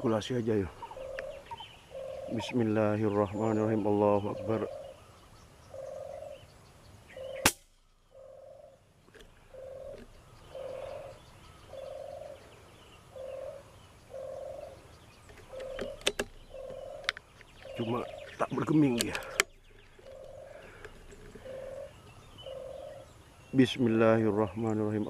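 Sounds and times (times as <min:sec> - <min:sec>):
low bird call: 0:00.0 - 0:25.0
rifle shot: 0:07.4 - 0:08.0
sharp clicks: 0:15.3 - 0:17.8, 0:18.9 - 0:21.4.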